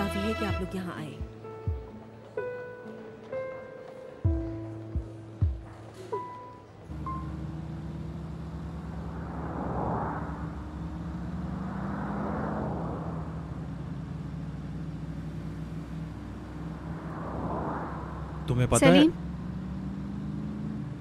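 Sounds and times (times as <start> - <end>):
passing traffic: 0.0 - 21.0
car engine and road hum: 4.4 - 21.0.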